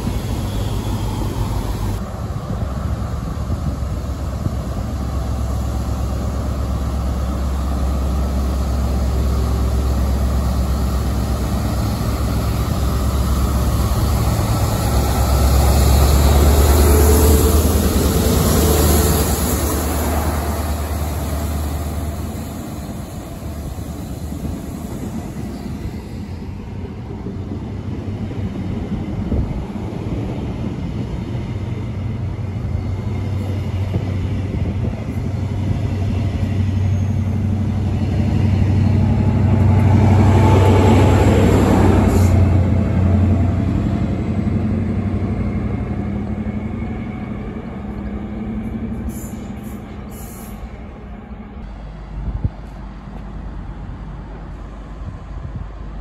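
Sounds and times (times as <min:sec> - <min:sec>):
diesel train engine: 0:00.0 - 0:56.0
train wheels on rails: 0:00.0 - 0:56.0.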